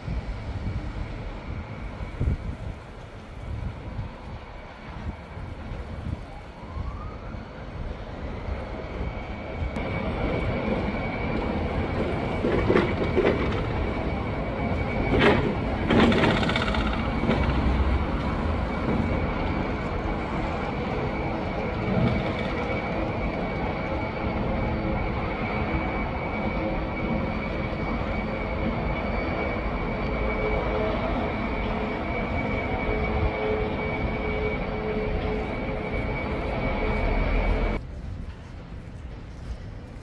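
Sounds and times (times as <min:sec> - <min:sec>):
passing vehicles rumbling: 0:09.8 - 0:23.4.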